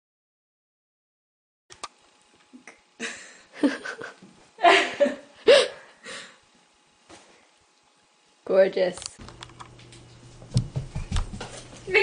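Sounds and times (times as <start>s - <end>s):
person laughing: 2.6s - 6.4s.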